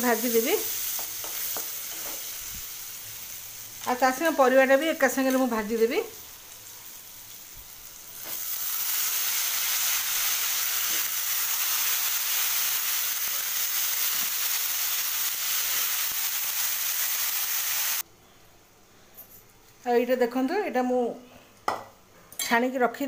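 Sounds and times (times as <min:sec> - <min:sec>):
vegetables frying in hot oil: 0:00.0 - 0:18.0.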